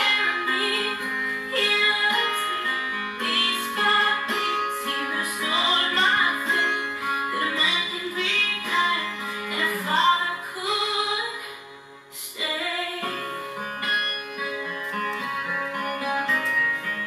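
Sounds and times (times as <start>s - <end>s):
woman singing: 0.0s - 13.4s
plucked guitar: 0.0s - 17.0s.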